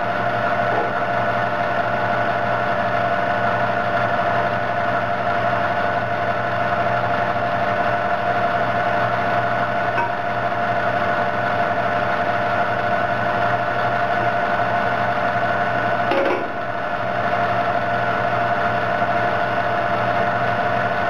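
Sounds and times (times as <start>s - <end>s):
constant whine: 0.0s - 20.8s
diesel engine idling: 0.0s - 21.0s.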